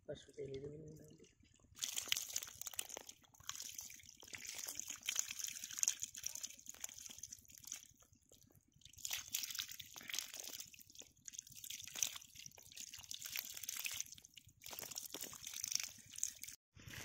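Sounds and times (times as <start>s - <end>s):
water trickling over mud: 0.1s - 17.0s
fish wriggling and splashing: 1.2s - 16.6s.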